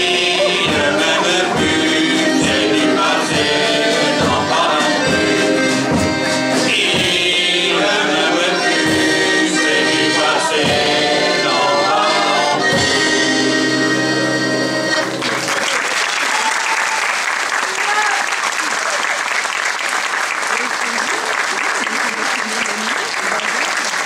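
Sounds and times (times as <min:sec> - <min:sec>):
group singing with band: 0:00.0 - 0:14.1
accordion: 0:00.0 - 0:15.6
applause: 0:15.0 - 0:24.0.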